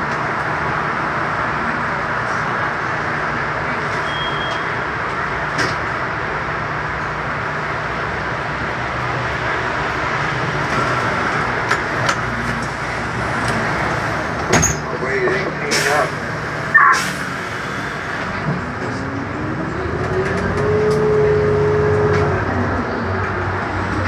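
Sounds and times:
bus engine hum: 0:00.0 - 0:24.0
road noise: 0:00.0 - 0:24.0.

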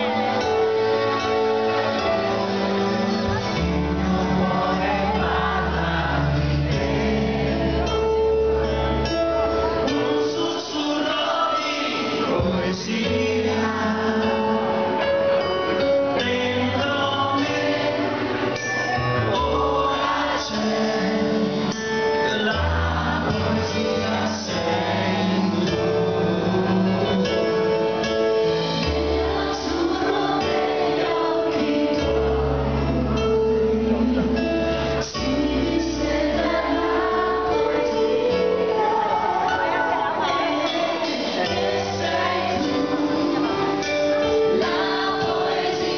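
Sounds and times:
live pop band playing: 0:00.0 - 0:45.9
man and woman singing: 0:02.5 - 0:07.8, 0:09.8 - 0:15.0, 0:16.0 - 0:28.0, 0:28.8 - 0:45.9.

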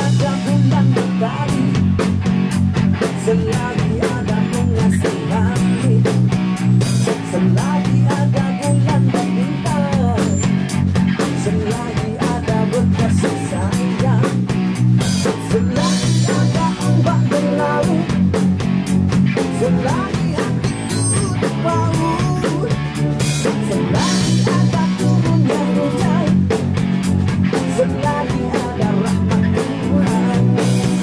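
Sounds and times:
man singing into microphone: 0:00.0 - 0:01.9, 0:03.0 - 0:06.3, 0:07.3 - 0:10.5, 0:11.2 - 0:14.4, 0:15.3 - 0:18.2, 0:19.4 - 0:22.8, 0:23.5 - 0:26.5, 0:27.5 - 0:31.0
drum kit steady beat: 0:00.0 - 0:31.0
electric guitar: 0:00.0 - 0:31.0.

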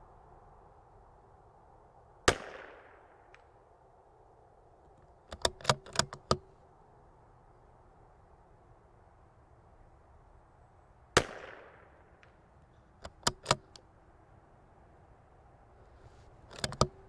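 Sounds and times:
rifle shot: 0:02.2 - 0:03.5, 0:11.2 - 0:12.3
rifle bolt metallic clicks: 0:05.3 - 0:06.5, 0:12.2 - 0:13.9, 0:16.4 - 0:17.0.

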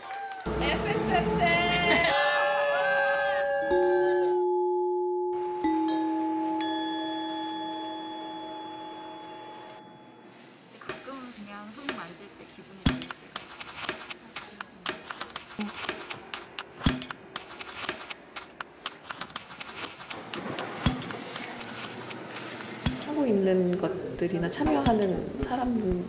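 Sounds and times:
ringing chime tone: 0:03.7 - 0:10.4
gravel crunching on straw mat: 0:10.3 - 0:16.0, 0:18.4 - 0:23.6.

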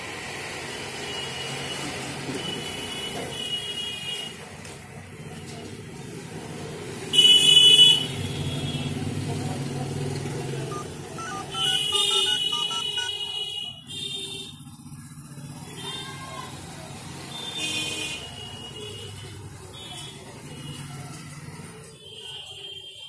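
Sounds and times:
traffic engines running: 0:04.0 - 0:22.0
vehicle horns honking: 0:10.7 - 0:14.1.

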